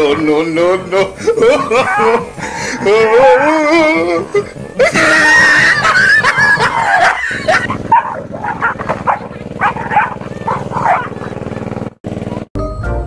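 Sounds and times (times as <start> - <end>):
small dog barking and yelping: 6.6 - 11.3.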